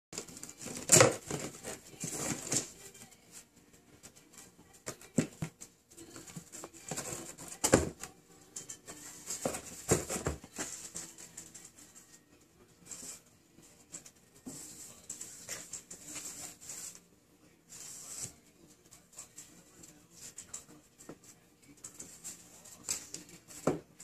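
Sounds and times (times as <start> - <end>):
cats scratching on cardboard: 0.2 - 8.0, 12.8 - 23.9.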